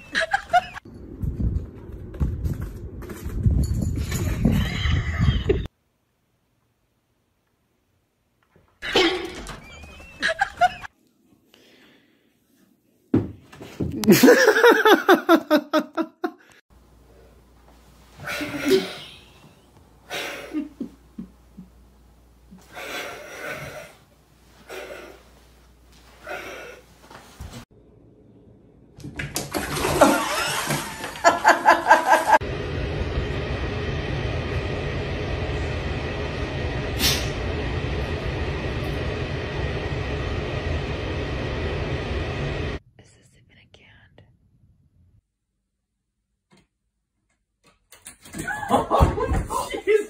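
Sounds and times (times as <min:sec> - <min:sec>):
person laughing high-pitched: 0:00.0 - 0:00.8, 0:10.2 - 0:10.9, 0:14.0 - 0:16.4, 0:18.3 - 0:19.3, 0:48.4 - 0:50.0
bathtub jets churning water: 0:29.3 - 0:32.4
low rushing hum: 0:32.3 - 0:45.2.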